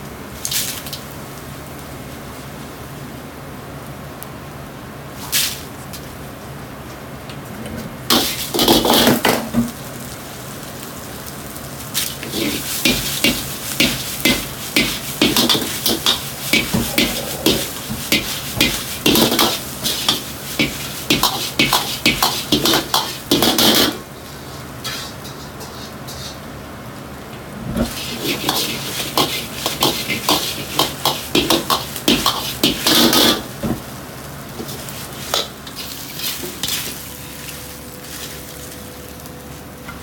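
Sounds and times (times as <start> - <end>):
gas burner roar: 0.0 - 40.0
oil sizzling: 8.0 - 39.8
metal ladle clanking and scraping wok: 12.2 - 24.0, 27.8 - 33.5.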